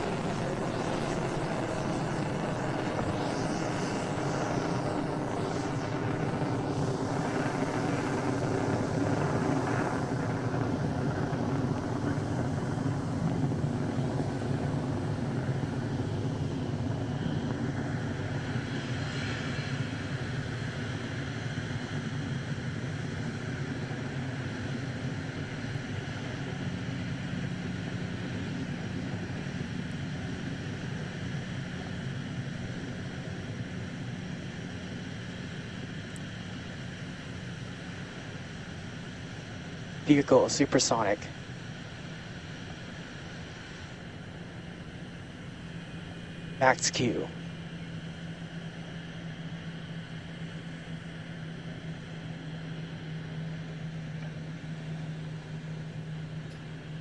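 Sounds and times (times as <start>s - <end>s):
rocket engines roaring: 0.0s - 57.0s.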